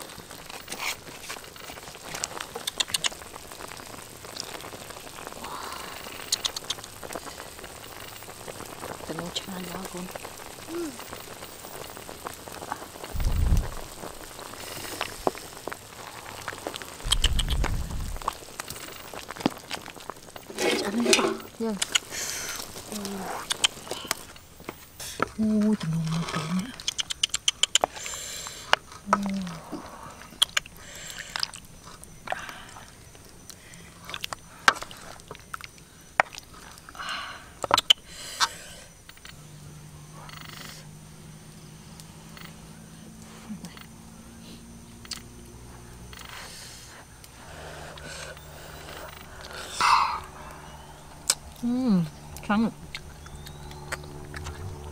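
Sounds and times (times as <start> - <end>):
broth splashing: 0.0 - 25.1
soup boiling with bubbles popping: 0.0 - 44.0, 44.7 - 54.9
short low rumbles: 13.0 - 14.2, 17.0 - 18.5.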